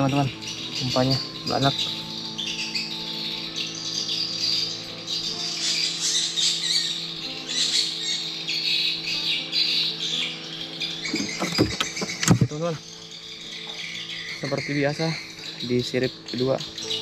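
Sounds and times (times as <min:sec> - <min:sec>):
birds chirping and squawking: 0:00.0 - 0:17.0.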